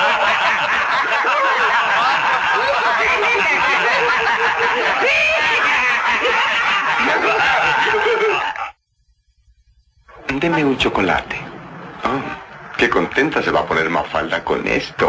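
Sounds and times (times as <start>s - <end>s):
group of men laughing: 0.0s - 8.8s.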